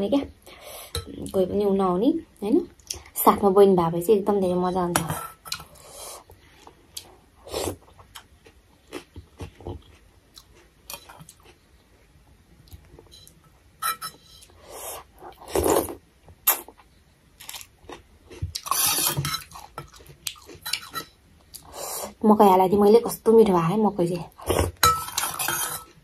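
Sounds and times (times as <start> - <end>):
chewing: 16.5 - 21.7.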